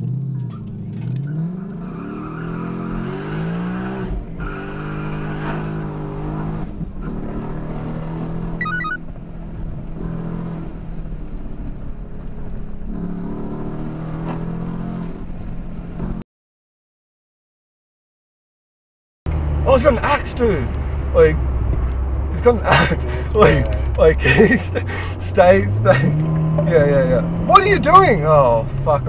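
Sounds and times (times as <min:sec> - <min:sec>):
electronic beep: 0:08.6 - 0:09.0
car engine revving: 0:19.3 - 0:29.0.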